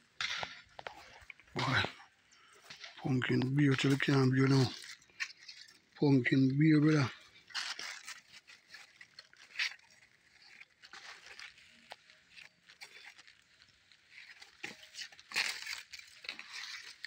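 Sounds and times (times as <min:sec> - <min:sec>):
footsteps on dry grass: 0:00.0 - 0:17.0
vines rustling on leaf litter: 0:00.1 - 0:17.0.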